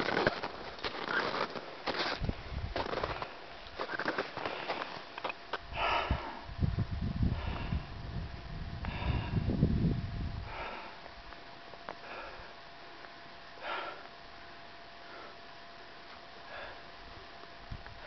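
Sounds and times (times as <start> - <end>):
wind rumble on microphone: 2.2 - 3.2, 5.6 - 11.3, 17.6 - 18.0
person breathing heavily: 5.7 - 6.6, 7.2 - 8.0, 8.8 - 9.6, 10.4 - 11.2, 11.9 - 12.7, 13.5 - 14.2, 15.0 - 15.5, 16.4 - 17.0.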